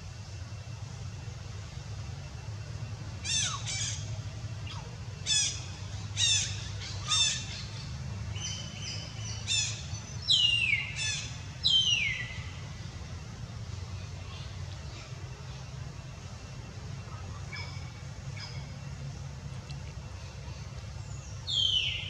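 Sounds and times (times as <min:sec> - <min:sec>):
steady low hum: 0:00.0 - 0:22.0
baby monkey high-pitched cries: 0:03.2 - 0:04.0.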